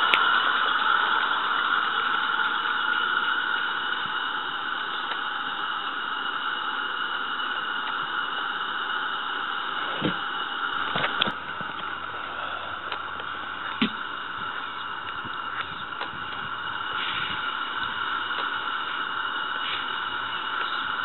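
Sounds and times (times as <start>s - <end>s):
steam hissing: 0.0s - 21.0s
faint clicks: 17.8s - 18.6s.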